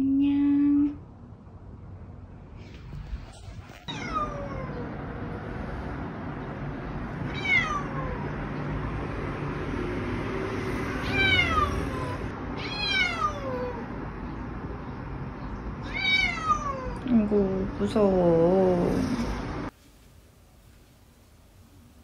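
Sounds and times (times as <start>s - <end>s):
cat meowing: 3.8s - 5.0s, 7.3s - 8.3s, 11.0s - 13.9s, 15.8s - 17.0s.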